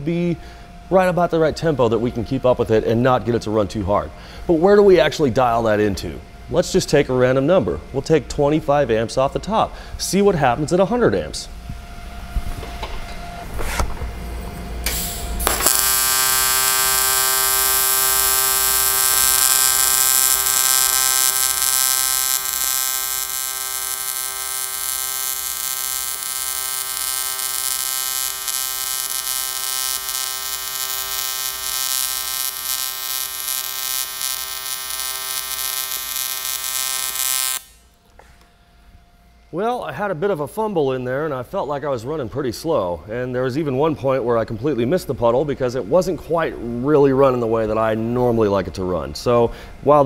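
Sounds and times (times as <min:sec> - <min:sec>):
welding arc buzzing and hissing: 0:14.9 - 0:37.9.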